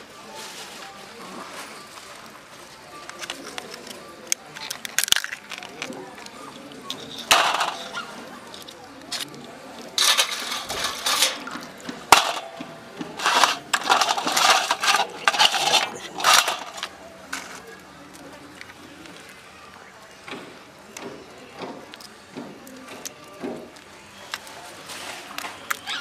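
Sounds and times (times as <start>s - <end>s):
crab shells cracking: 3.2s - 6.4s
pieces clattering onto steel plate: 6.9s - 8.0s, 10.0s - 17.5s.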